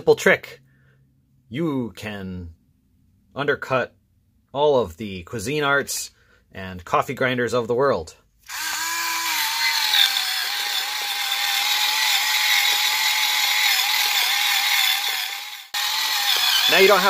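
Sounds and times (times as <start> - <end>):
electric coffee grinder whining: 8.5 - 17.0.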